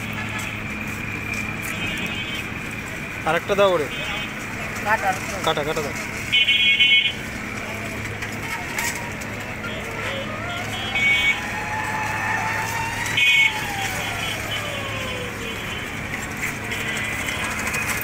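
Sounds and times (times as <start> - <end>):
low engine hum: 0.0 - 18.0
siren rising and falling: 10.0 - 15.6.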